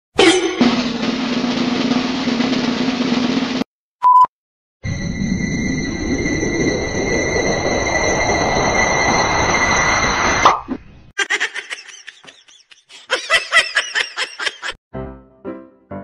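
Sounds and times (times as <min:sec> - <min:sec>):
high whine: 0:04.8 - 0:10.8
laughter sound effect: 0:11.2 - 0:14.8.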